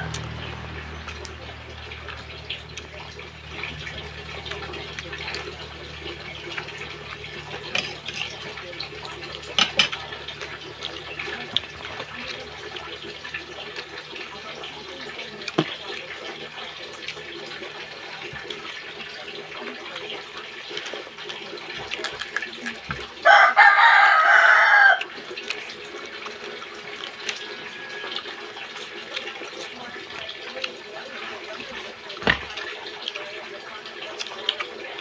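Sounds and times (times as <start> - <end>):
rooster crowing: 23.2 - 25.1, 27.4 - 28.3.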